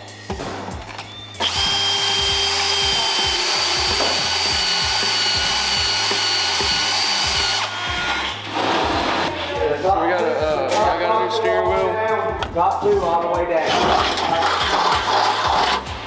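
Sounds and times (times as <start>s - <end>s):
power tool whining against metal: 1.4s - 8.4s.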